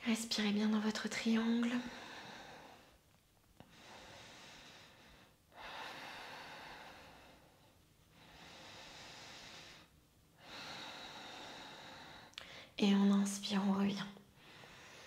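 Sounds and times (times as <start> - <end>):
woman breathing slowly: 1.8 - 12.8, 14.2 - 15.0.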